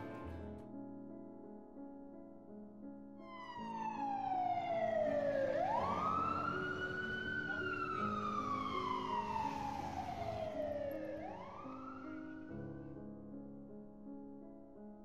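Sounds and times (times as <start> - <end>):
soft piano music: 0.0 - 15.0
siren wailing: 3.3 - 12.6.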